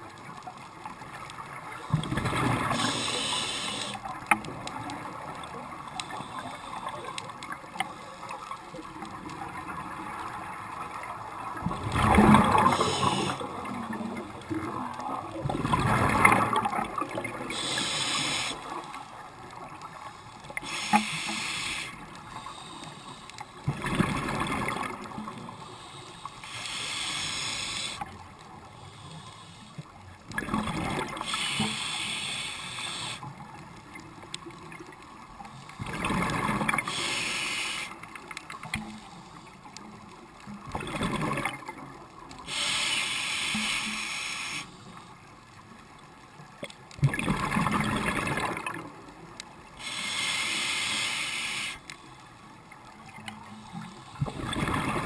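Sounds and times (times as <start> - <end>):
regulator inhalation hiss: 2.7 - 4.1, 12.5 - 13.4, 17.4 - 18.9, 20.2 - 23.6, 25.5 - 28.0, 28.7 - 29.9, 31.2 - 33.3, 36.8 - 38.0, 42.4 - 45.0, 49.8 - 52.2
exhaled bubbles rushing: 11.6 - 13.7, 14.4 - 17.6, 47.0 - 48.9, 54.2 - 55.0.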